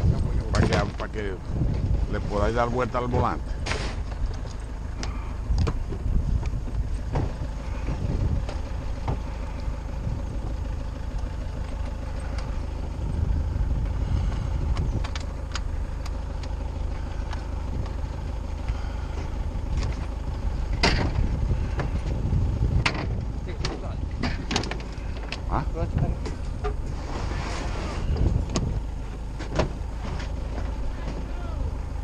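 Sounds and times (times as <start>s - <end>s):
truck engine rumbling: 0.0s - 32.0s
knocks and rattles: 20.7s - 22.2s, 22.8s - 26.8s.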